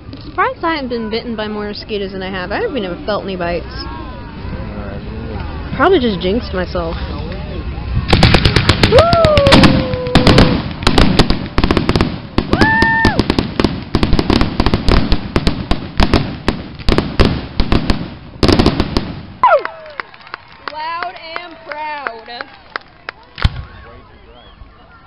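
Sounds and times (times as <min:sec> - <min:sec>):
fireworks bangs and crackling: 0:07.9 - 0:19.5.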